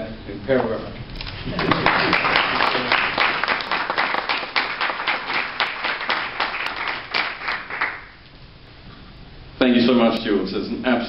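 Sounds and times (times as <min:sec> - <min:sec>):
audience applauding: 0:01.5 - 0:08.2.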